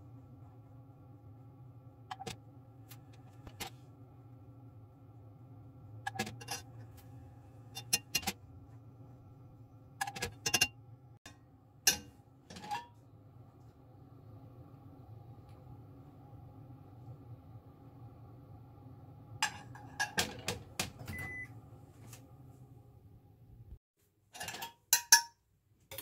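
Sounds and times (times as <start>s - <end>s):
steady low hum: 0.0s - 20.0s
kitchen utensils clinking: 6.1s - 6.8s, 7.8s - 8.4s, 10.0s - 10.7s, 11.9s - 13.0s, 19.4s - 21.3s, 24.4s - 26.0s.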